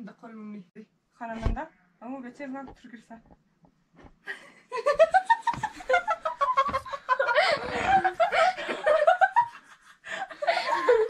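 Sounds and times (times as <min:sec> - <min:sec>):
girls laughing and giggling: 0:04.3 - 0:11.0.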